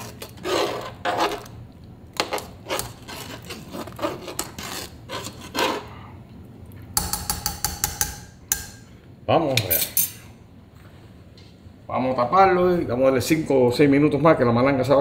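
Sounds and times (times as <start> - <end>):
spoon stirring thick stew: 0.0 - 5.9.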